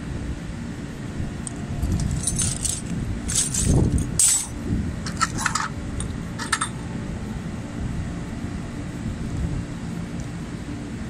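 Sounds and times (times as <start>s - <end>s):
metal tools clinking in a bag: 1.8s - 5.7s, 6.4s - 6.7s.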